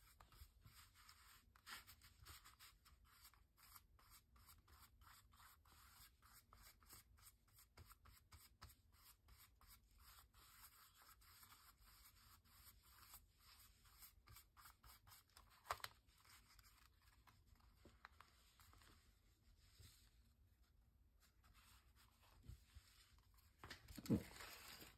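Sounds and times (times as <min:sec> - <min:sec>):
paintbrush scratching on paper: 0:00.0 - 0:15.4.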